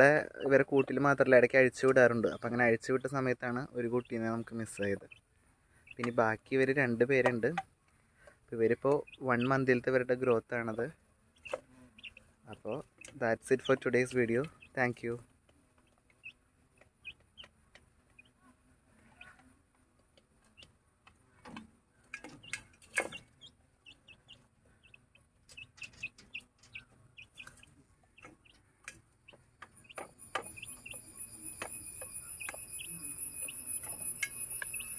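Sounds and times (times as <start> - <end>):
hen clucking: 0.0 - 7.7, 8.6 - 15.2, 15.8 - 20.8, 21.5 - 34.9
chicks peeping: 0.0 - 34.9
high ringing tone: 30.1 - 34.9.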